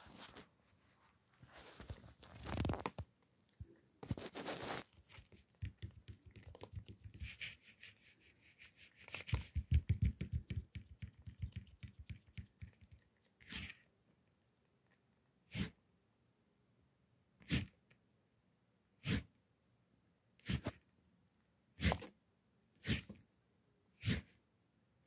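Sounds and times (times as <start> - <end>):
kitten crunching dry kibble: 1.4 - 7.0.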